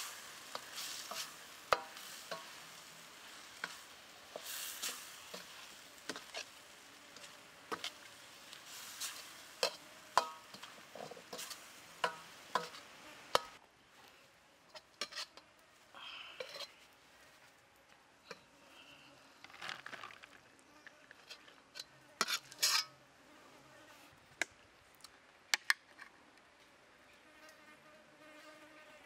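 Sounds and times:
food sizzling: 0.0 - 13.6.

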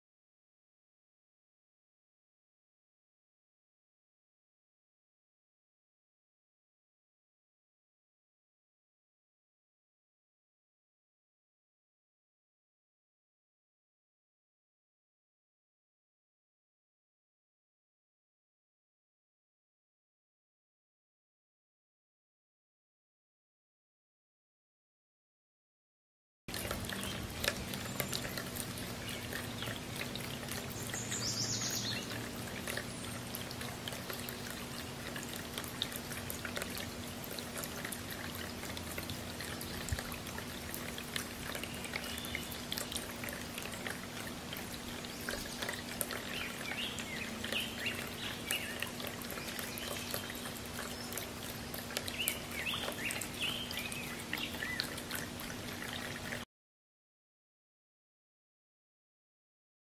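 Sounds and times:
fountain splashing and trickling: 26.5 - 56.4
bird chirps: 30.7 - 32.2.

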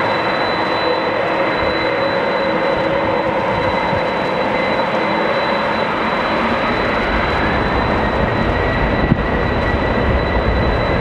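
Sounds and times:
high-pitched engine whine: 0.0 - 11.0
jet engines rumbling: 0.0 - 11.0.

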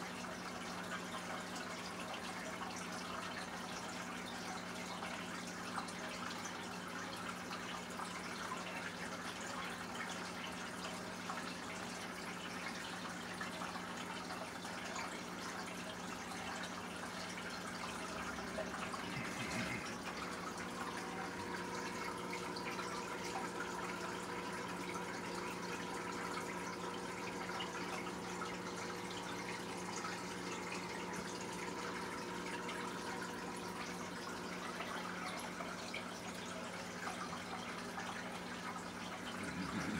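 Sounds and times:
water trickling and bubbling: 0.0 - 39.9
low electric hum: 13.5 - 39.9.

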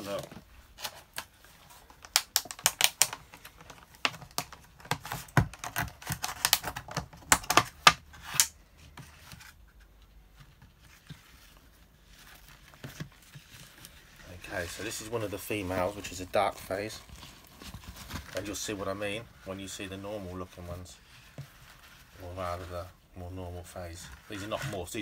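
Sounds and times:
plastic lid clicking and crackling: 2.0 - 8.6.

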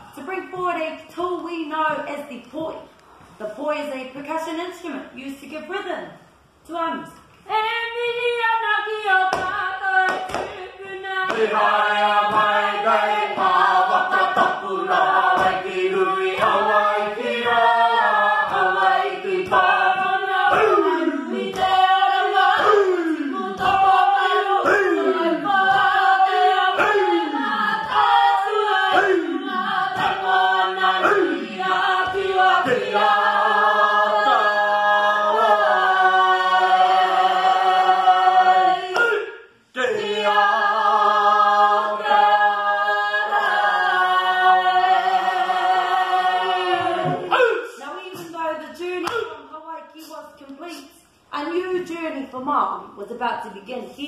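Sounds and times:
group singing: 7.5 - 49.5.

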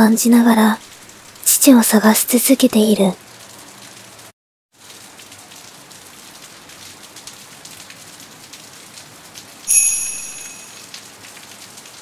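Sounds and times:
steady rain: 0.0 - 12.0
bright chime ringing: 9.7 - 10.9.

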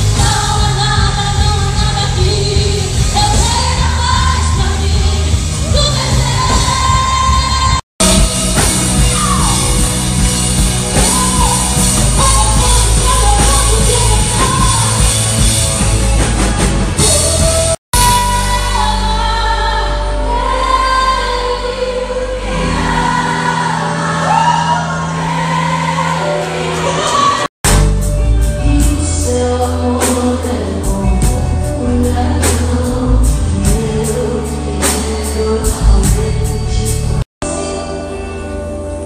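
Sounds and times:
live band playing: 0.0 - 39.0
person singing: 10.8 - 15.2, 28.4 - 38.9.

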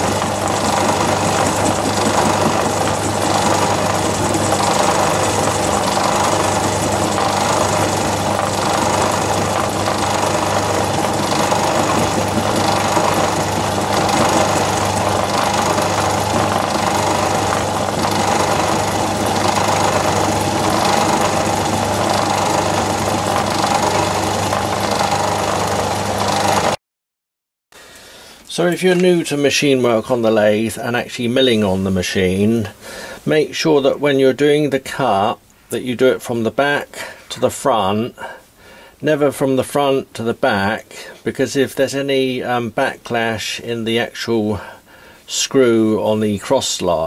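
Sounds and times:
cutter chattering against metal: 0.0 - 26.7
lathe motor hum: 0.0 - 26.8.

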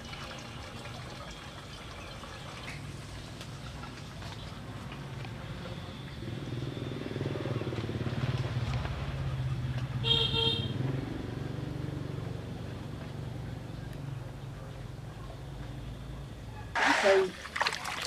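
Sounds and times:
passing vehicle engine: 6.1 - 13.8.

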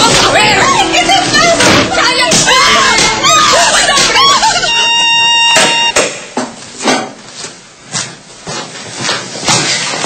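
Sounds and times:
footsteps: 0.0 - 10.0
girl screaming and wailing: 0.6 - 5.9
high electronic tone: 3.2 - 6.0.

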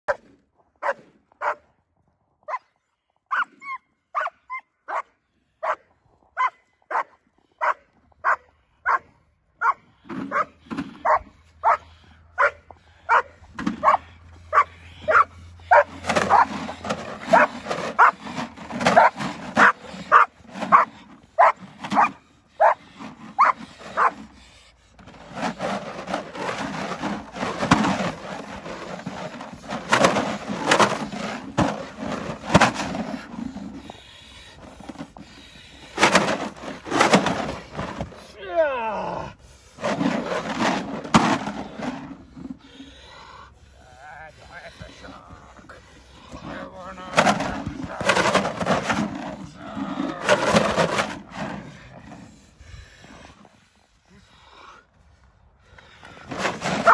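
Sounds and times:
dog barking: 0.8 - 1.6, 3.3 - 5.8, 6.4 - 16.5, 17.3 - 18.2, 18.9 - 22.8, 23.4 - 24.2.

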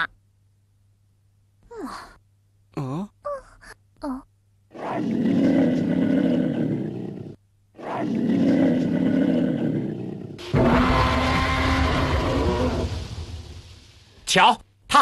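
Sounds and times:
dinosaur growling roars: 4.8 - 13.6.

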